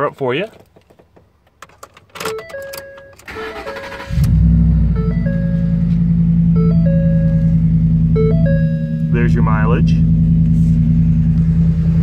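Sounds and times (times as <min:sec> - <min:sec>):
door-ajar warning chime: 0:02.3 - 0:09.4
engine cranking and idling: 0:02.3 - 0:12.0.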